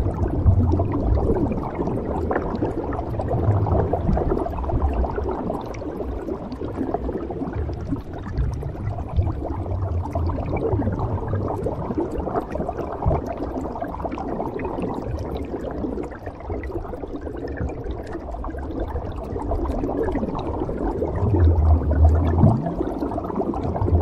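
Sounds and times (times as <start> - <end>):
bubbles gurgling underwater: 0.0 - 24.0.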